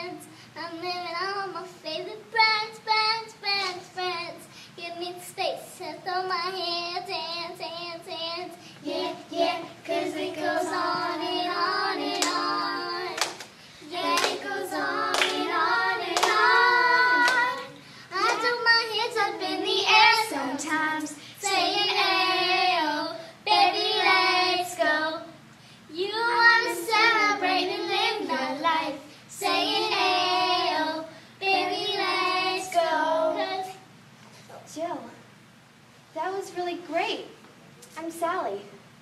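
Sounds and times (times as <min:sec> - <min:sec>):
young voices singing pop song: 0:00.0 - 0:33.9
hand claps: 0:12.1 - 0:12.5, 0:13.2 - 0:13.5, 0:14.1 - 0:14.5, 0:15.1 - 0:15.4, 0:16.1 - 0:16.5, 0:17.2 - 0:18.5.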